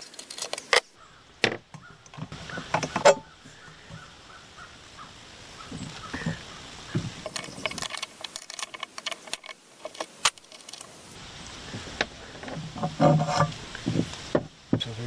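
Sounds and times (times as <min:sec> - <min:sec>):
small metal parts clicking: 0:00.0 - 0:00.9, 0:07.2 - 0:11.2.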